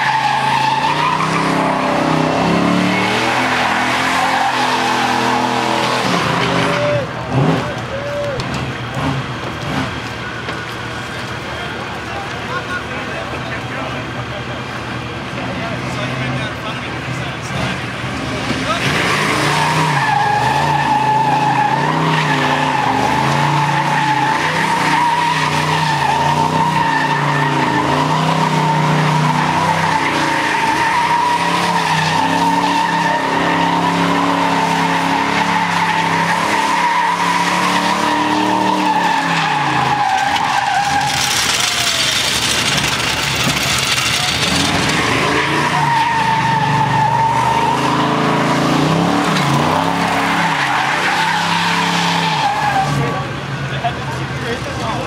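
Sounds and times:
car engine revving: 0:00.0 - 0:55.0
tire squealing: 0:00.0 - 0:55.0.

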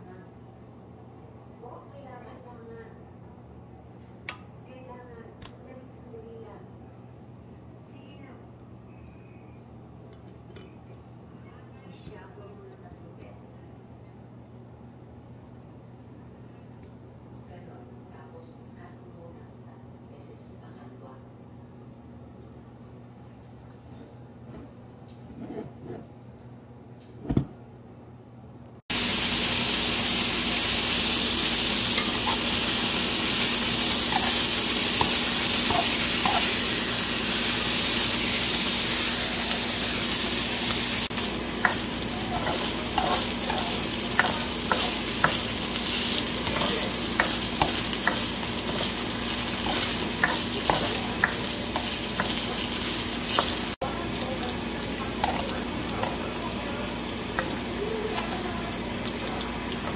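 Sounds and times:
meat sizzling in a wok: 0:28.9 - 0:59.9
spatula scraping a pan: 0:33.7 - 0:53.7.

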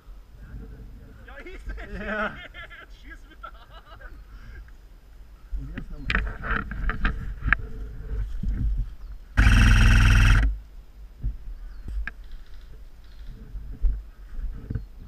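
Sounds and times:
gear clicks and rustles: 0:06.1 - 0:10.6
electric gun full-auto burst: 0:09.4 - 0:10.6.

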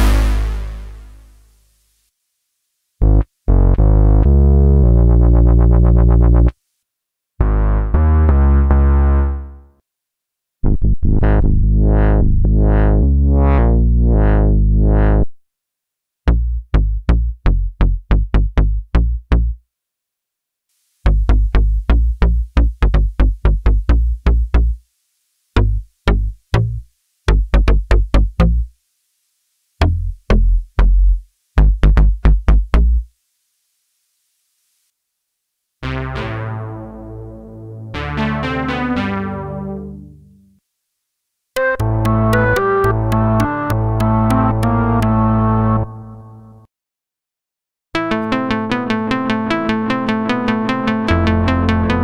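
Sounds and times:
staccato synth bass notes: 0:00.0 - 0:01.3, 0:07.4 - 0:09.6, 0:10.6 - 0:15.3, 0:21.1 - 0:24.8, 0:25.6 - 0:28.7, 0:29.8 - 0:33.0, 0:35.8 - 0:40.2, 0:41.6 - 0:46.6, 0:49.0 - 0:52.0
synthesizer bass line: 0:00.0 - 0:01.4, 0:03.0 - 0:06.5, 0:07.4 - 0:09.6, 0:10.6 - 0:15.4, 0:35.8 - 0:40.4, 0:41.6 - 0:46.7, 0:48.0 - 0:52.0
faint hiss: 0:00.0 - 0:03.0, 0:20.6 - 0:21.1, 0:24.6 - 0:25.6, 0:26.8 - 0:27.3, 0:28.6 - 0:29.8, 0:33.0 - 0:35.8.

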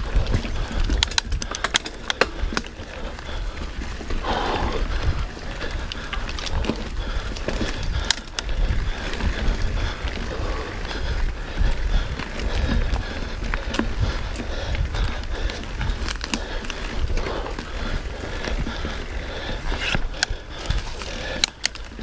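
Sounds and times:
tyre rolling on trail: 0:00.0 - 0:22.0
wind rumbling on microphone: 0:00.0 - 0:22.0
bike clicks knocks and rattles: 0:00.1 - 0:04.2, 0:05.0 - 0:10.6, 0:11.6 - 0:22.0.

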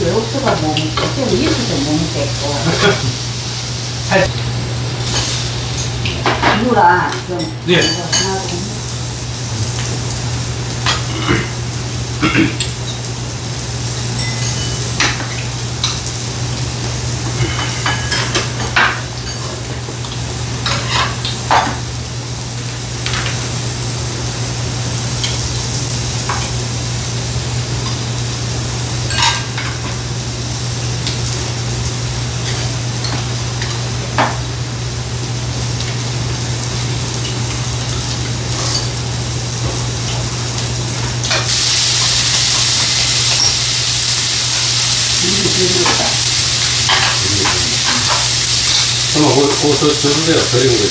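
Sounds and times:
food sizzling in a pan: 0:00.0 - 0:50.9
chopsticks and dishes clinking: 0:07.4 - 0:08.5, 0:14.1 - 0:16.0, 0:17.3 - 0:19.8, 0:46.8 - 0:48.9.

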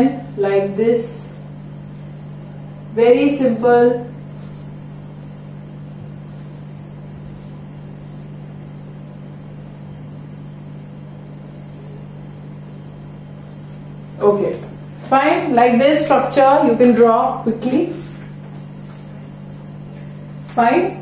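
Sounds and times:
room hum: 0:00.0 - 0:21.0
marker on whiteboard: 0:03.2 - 0:10.8, 0:11.5 - 0:16.9.

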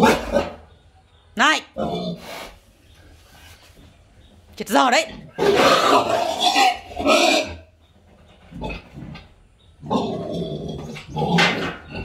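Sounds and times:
pig squealing: 0:05.1 - 0:07.7, 0:09.8 - 0:12.0.

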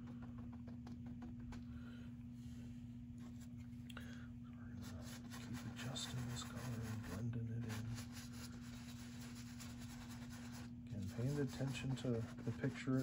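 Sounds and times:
steady low hum: 0:00.0 - 0:13.0
paintbrush scrubbing on canvas: 0:04.8 - 0:13.0.

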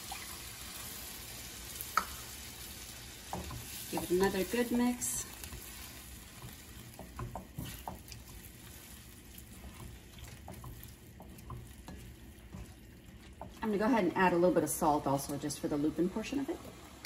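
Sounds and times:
spatula scraping pan: 0:03.2 - 0:14.5.

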